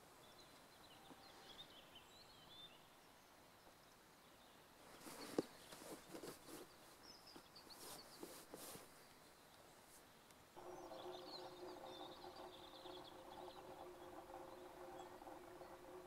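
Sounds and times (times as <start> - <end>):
faint bird chirps: 0.2 - 9.7, 10.6 - 16.0
sharp clicks and knocks: 10.6 - 16.0.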